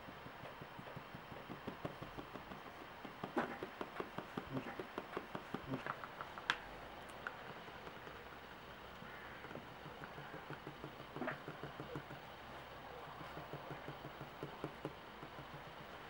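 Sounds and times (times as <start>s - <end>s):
sponge tapping on plastic: 0.0s - 6.5s, 9.4s - 12.2s, 13.0s - 15.7s.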